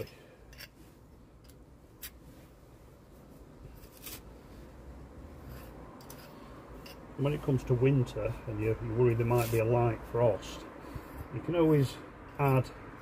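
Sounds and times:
pointing tool scraping mortar: 0:09.3 - 0:09.7.

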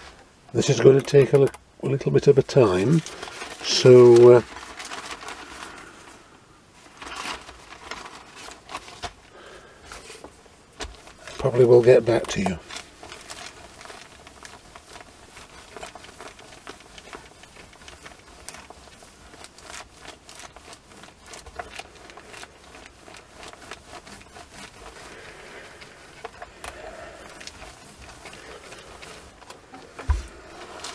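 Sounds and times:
paper rustling and crinkling: 0:00.0 - 0:30.9
iron sliding over newspaper: 0:06.9 - 0:30.9.

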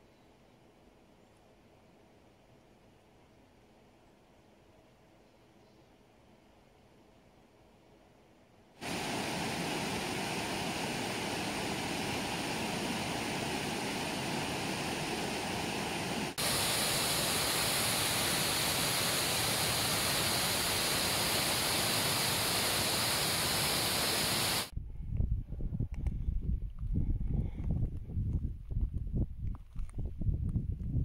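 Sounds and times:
river rapids roaring: 0:08.8 - 0:24.7
white-water cascade hissing: 0:08.8 - 0:24.7.

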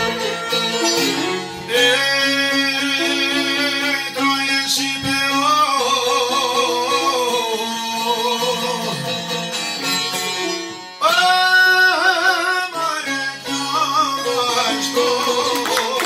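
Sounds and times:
violin playing: 0:00.0 - 0:04.9
plucked lutes: 0:00.0 - 0:16.0
man singing: 0:01.2 - 0:09.4, 0:11.0 - 0:16.0.

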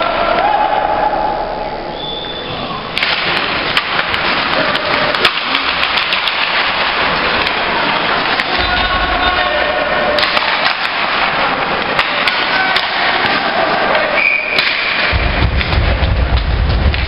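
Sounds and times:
high whistle: 0:01.8 - 0:02.8, 0:14.2 - 0:14.6
hockey sticks clacking: 0:02.9 - 0:17.0
skates scraping ice: 0:03.0 - 0:16.4
low rumble: 0:15.1 - 0:17.0.

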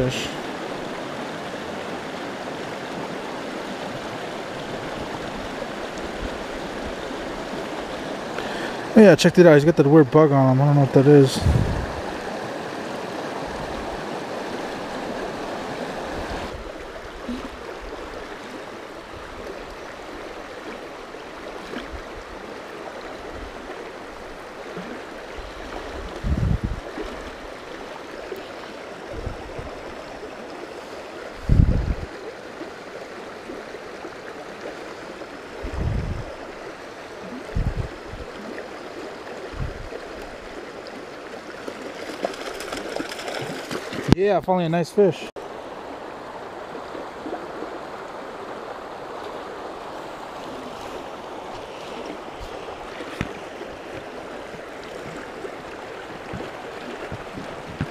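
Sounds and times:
creek running over rocks: 0:00.0 - 0:57.9
low thumps near microphone: 0:11.4 - 0:12.0.

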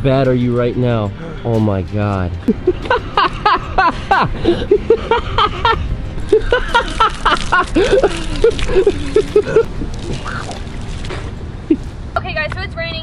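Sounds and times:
person sputtering cries and gasps: 0:04.2 - 0:05.4, 0:07.7 - 0:10.6
milk gushing and splashing: 0:06.3 - 0:11.5.

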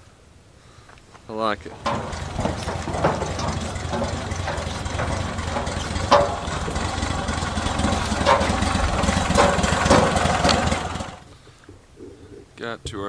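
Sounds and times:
sharp knocks: 0:01.7 - 0:11.2
boat motor running: 0:01.7 - 0:11.3.

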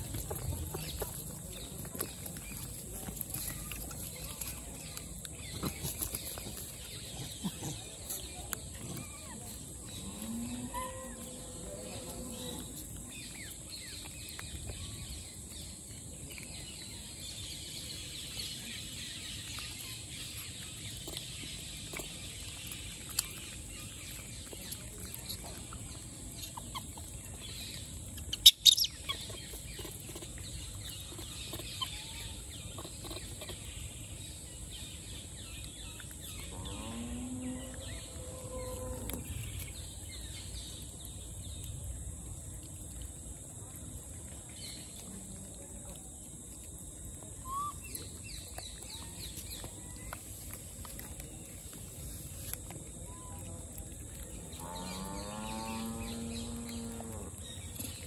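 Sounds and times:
monkey calls: 0:47.4 - 0:47.8.

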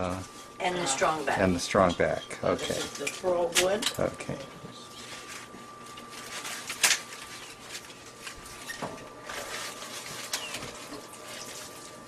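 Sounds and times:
plant stems rustling and crackling: 0:05.0 - 0:12.0.

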